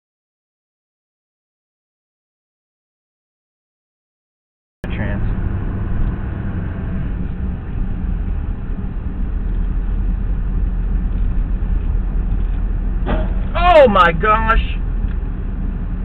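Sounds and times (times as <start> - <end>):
car road and engine rumble: 4.8 - 16.0.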